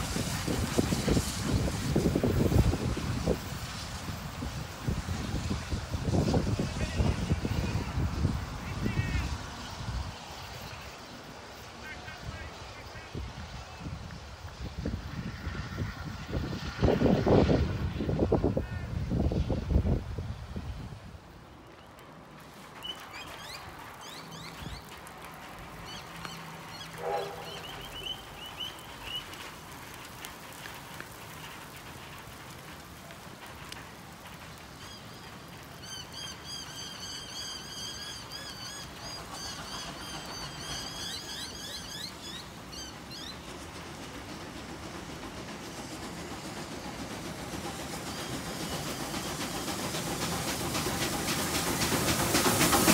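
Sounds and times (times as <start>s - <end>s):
birds chirping: 22.8s - 25.0s, 25.8s - 29.4s.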